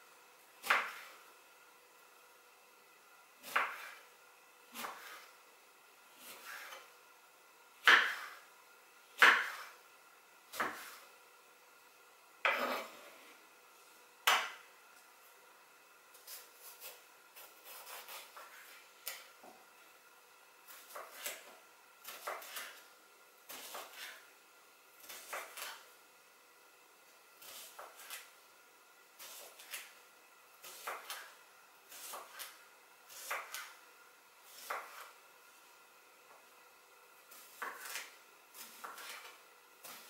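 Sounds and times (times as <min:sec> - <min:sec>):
knife chopping on wooden board: 0:00.6 - 0:01.1, 0:03.4 - 0:04.0, 0:07.8 - 0:08.4, 0:09.2 - 0:09.8, 0:10.5 - 0:11.0, 0:12.4 - 0:13.0, 0:14.2 - 0:14.6, 0:16.2 - 0:19.3, 0:20.7 - 0:22.8, 0:30.6 - 0:31.3, 0:31.9 - 0:33.7, 0:34.5 - 0:35.1, 0:37.4 - 0:40.0.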